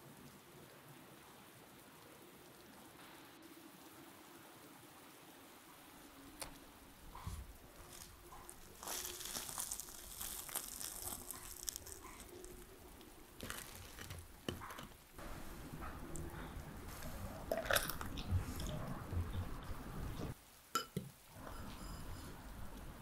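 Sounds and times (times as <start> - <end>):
bread crust crackling as torn: 7.8 - 15.0.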